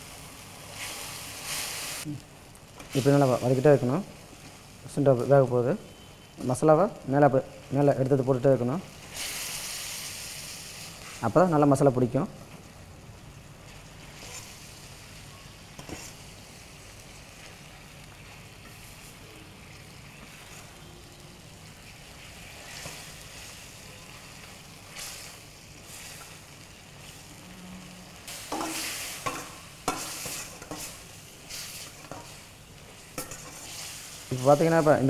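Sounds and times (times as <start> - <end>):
chicken sizzling in a pan: 0.0 - 35.0
spatula scraping a pan: 15.8 - 16.2, 28.3 - 32.4, 33.2 - 34.9.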